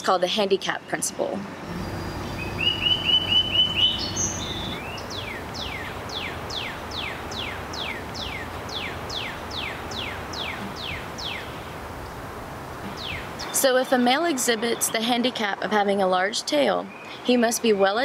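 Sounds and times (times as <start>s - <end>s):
outdoor background hiss: 0.0s - 18.0s
songbird whistling: 1.8s - 11.6s
bird trill: 1.8s - 11.7s, 12.9s - 13.6s.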